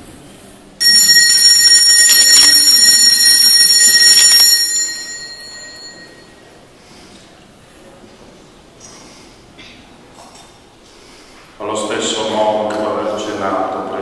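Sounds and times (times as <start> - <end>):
high bells ringing: 0.8 - 6.6.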